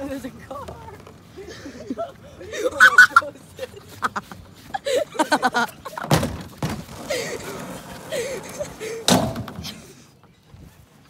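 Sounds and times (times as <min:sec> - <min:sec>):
cart wheels rumbling over asphalt: 0:00.0 - 0:11.0
canoe hitting guardrail: 0:09.1 - 0:09.7.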